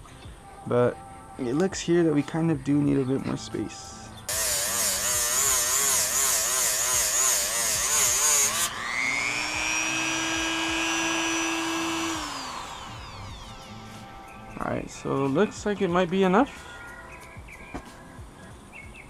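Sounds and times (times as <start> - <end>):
rotary tool grinding metal: 4.3 - 14.4
rotary tool high whine: 4.3 - 14.6.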